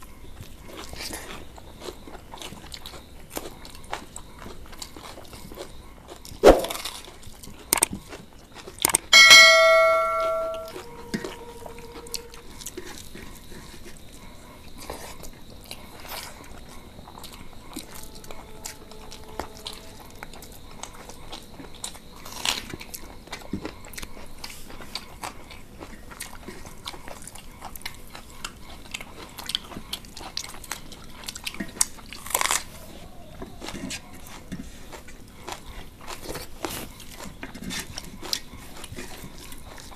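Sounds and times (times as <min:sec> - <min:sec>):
chewing: 0:00.3 - 0:09.1, 0:10.7 - 0:39.9
metal dish knocked and ringing: 0:09.2 - 0:11.8.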